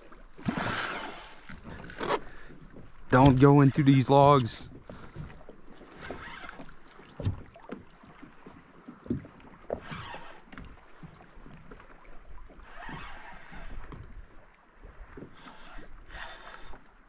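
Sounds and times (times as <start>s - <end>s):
water lapping against kayak: 0.0s - 17.0s
dull thumps from boat: 1.5s - 8.3s.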